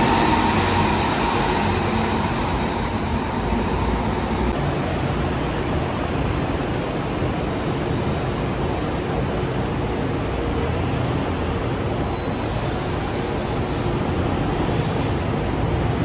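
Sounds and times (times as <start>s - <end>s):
bus engine passing: 0.0s - 6.1s
road noise: 0.0s - 16.0s.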